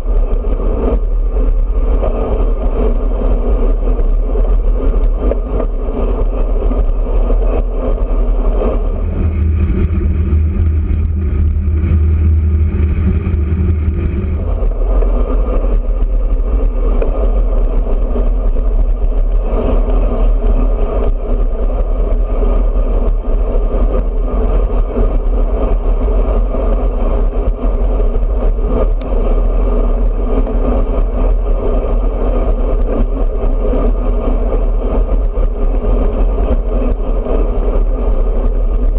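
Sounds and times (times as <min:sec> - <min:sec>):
wind rushing: 0:00.0 - 0:27.8
deep steady hum: 0:00.0 - 0:38.9
road noise: 0:00.0 - 0:38.9.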